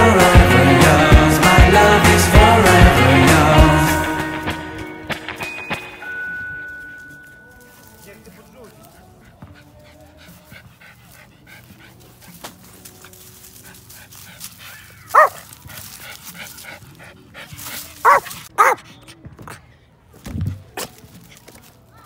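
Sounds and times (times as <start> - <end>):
small dog barking: 15.0 - 15.4, 18.0 - 18.8.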